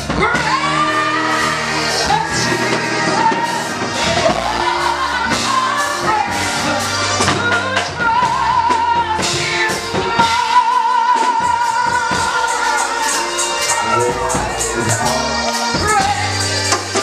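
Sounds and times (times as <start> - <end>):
drums: 0.0 - 17.0
keyboard: 0.0 - 17.0
woman singing through pa: 0.0 - 17.0.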